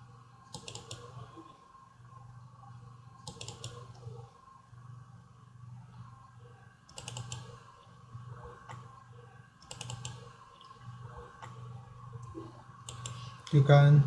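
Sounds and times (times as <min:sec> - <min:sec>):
steady low hum: 0:00.0 - 0:14.0
computer mouse clicking: 0:00.5 - 0:01.2, 0:03.2 - 0:04.2, 0:06.9 - 0:07.7, 0:08.5 - 0:09.0, 0:09.6 - 0:13.6.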